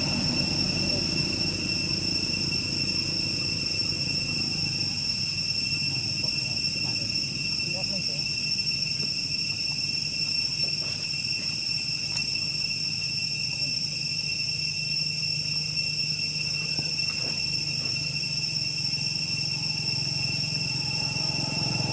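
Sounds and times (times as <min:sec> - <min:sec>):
insects droning: 0:00.0 - 0:21.9
low steady hum: 0:00.0 - 0:21.9.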